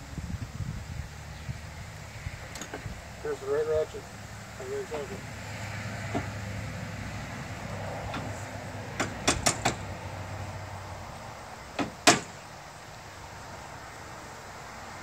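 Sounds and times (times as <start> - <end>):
hand tools clicking and knocking: 9.0 - 9.8.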